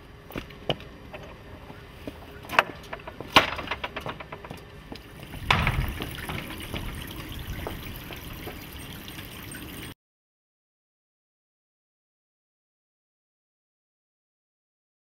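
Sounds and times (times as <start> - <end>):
footsteps: 4.1 - 8.8.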